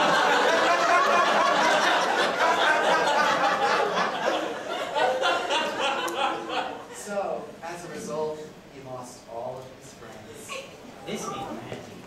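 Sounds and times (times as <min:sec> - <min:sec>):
audience laughing: 0:00.0 - 0:07.1.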